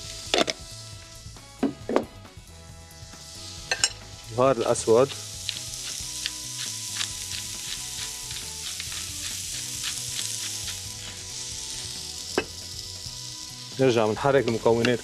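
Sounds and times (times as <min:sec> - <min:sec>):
carrots sizzling in oil: 0:00.0 - 0:15.0
pepper mill grinding clicks: 0:05.4 - 0:11.2.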